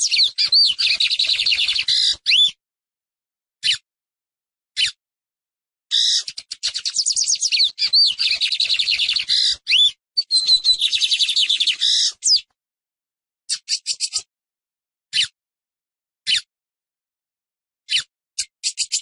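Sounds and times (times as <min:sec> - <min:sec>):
bird singing chattering notes: 0:00.0 - 0:02.5, 0:06.0 - 0:12.4.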